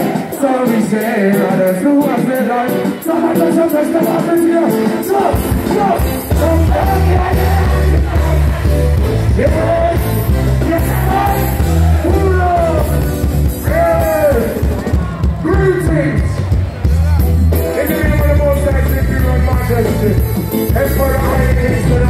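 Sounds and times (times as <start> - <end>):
person singing: 0.0 - 13.0
live reggae band playing: 0.0 - 22.0
heavy bass line: 5.0 - 22.0.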